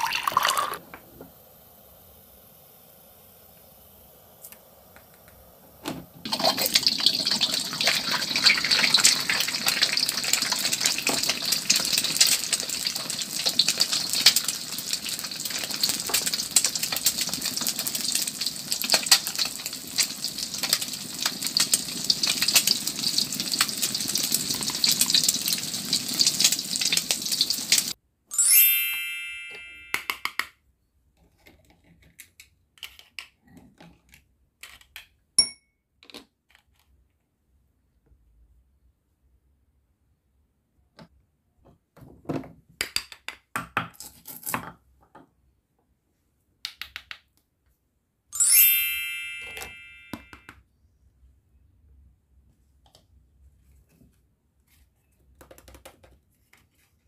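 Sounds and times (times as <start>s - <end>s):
frying sizzle with crackles: 4.4s - 28.0s
brief ringing tone: 28.4s - 30.0s, 48.4s - 50.4s.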